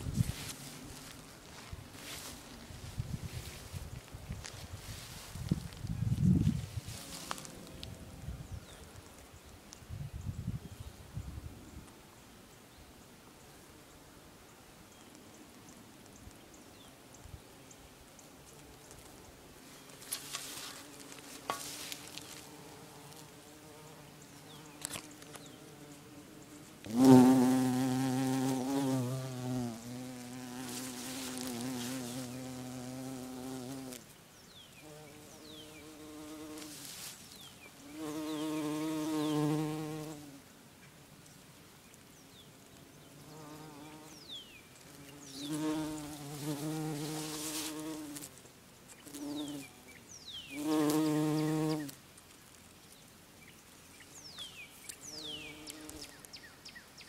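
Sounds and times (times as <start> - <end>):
bumblebee buzzing: 5.2 - 8.3, 20.0 - 34.0, 34.8 - 40.4, 42.4 - 48.4, 49.0 - 52.0, 55.0 - 56.2.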